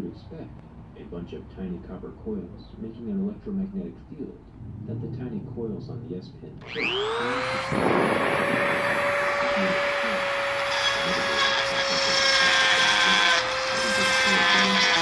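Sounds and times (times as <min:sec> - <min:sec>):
rotary tool high whine: 0:06.6 - 0:15.0.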